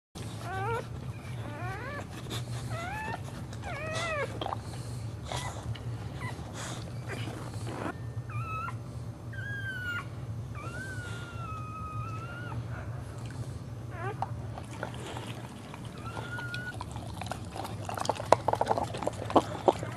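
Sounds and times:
dog whining: 0.2s - 19.9s.

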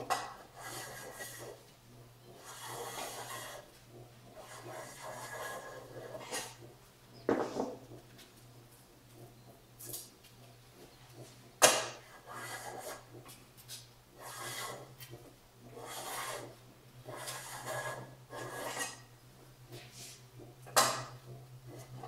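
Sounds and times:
hand plane scraping bamboo: 0.5s - 1.6s, 2.4s - 3.7s, 4.4s - 6.6s, 12.1s - 13.1s, 14.2s - 14.8s, 15.8s - 19.1s.

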